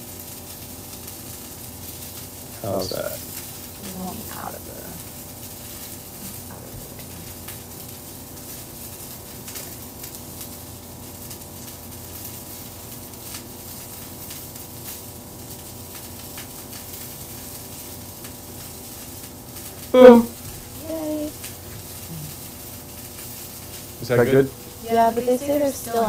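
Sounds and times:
faint steady hum: 0:00.0 - 0:26.0
fish sizzling in hot oil: 0:00.0 - 0:26.0.

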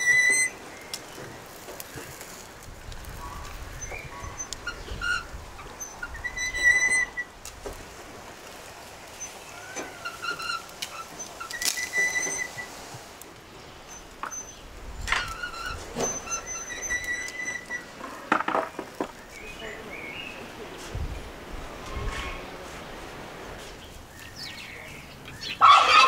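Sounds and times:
birds chirping and calling: 0:03.1 - 0:07.3, 0:23.8 - 0:26.0.

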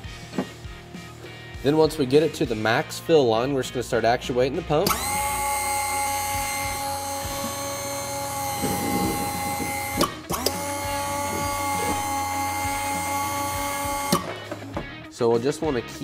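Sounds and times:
hydraulic pump whining: 0:04.8 - 0:15.0.

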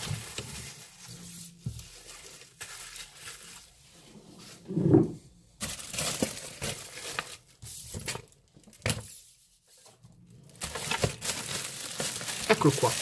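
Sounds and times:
plastic packaging crinkling: 0:00.0 - 0:03.8, 0:05.6 - 0:09.1, 0:10.3 - 0:13.0.

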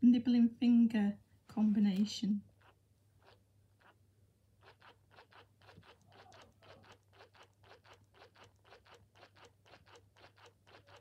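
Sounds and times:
toy mechanism rapid clicking: 0:04.7 - 0:11.0.

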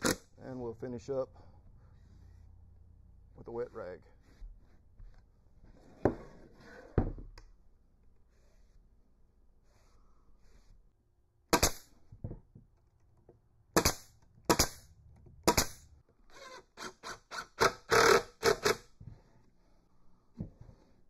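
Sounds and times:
pneumatic stapler firing: 0:00.0 - 0:00.3, 0:11.5 - 0:11.9, 0:13.8 - 0:15.8, 0:17.4 - 0:18.8
cordless drill bursts: 0:16.4 - 0:18.8.

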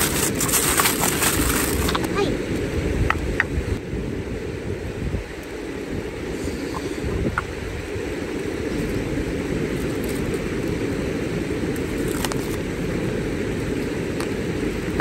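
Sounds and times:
campfire crackling: 0:00.0 - 0:02.1, 0:07.4 - 0:15.0.

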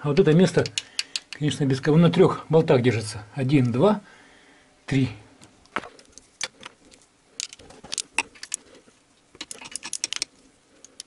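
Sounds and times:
small metal parts clinking: 0:06.0 - 0:08.6, 0:09.4 - 0:11.0.

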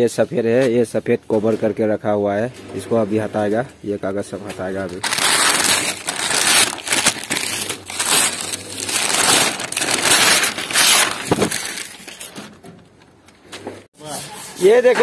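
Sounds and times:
newspaper tearing and crumpling: 0:05.0 - 0:12.5.

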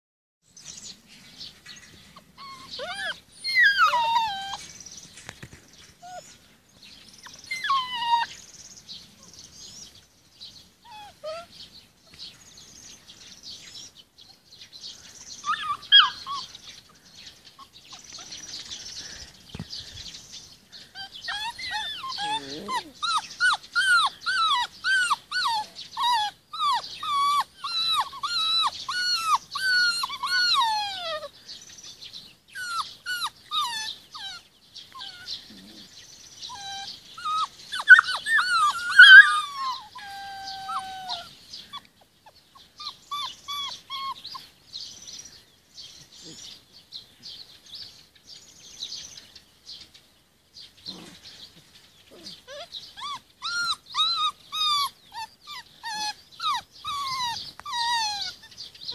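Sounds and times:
puppies whining and yelping: 0:02.1 - 0:05.1, 0:05.9 - 0:06.4, 0:07.1 - 0:08.6, 0:10.8 - 0:12.2, 0:15.4 - 0:16.9, 0:20.8 - 0:31.4, 0:32.5 - 0:44.6, 0:52.1 - 0:58.7.

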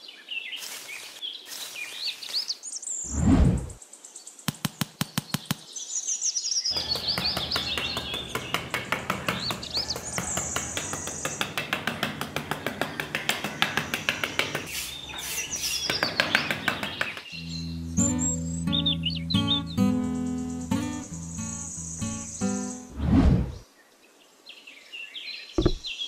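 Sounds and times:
birds chirping: 0:04.2 - 0:23.0, 0:25.4 - 0:26.0.

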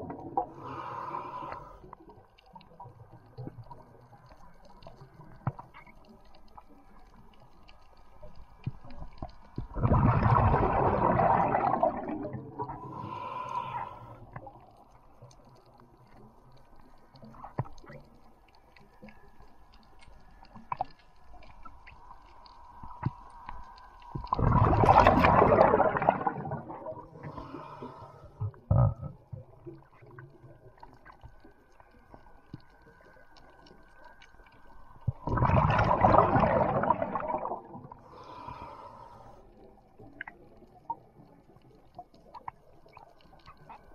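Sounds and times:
underwater rushing water bursts: 0:09.6 - 0:14.6, 0:22.8 - 0:30.9, 0:34.9 - 0:39.4
faint clicks: 0:13.4 - 0:24.4.

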